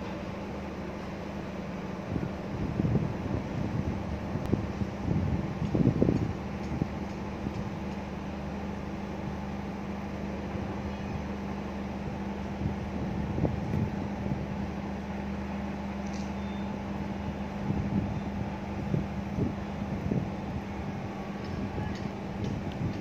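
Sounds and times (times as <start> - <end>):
forklift engine idling: 0.0 - 23.0.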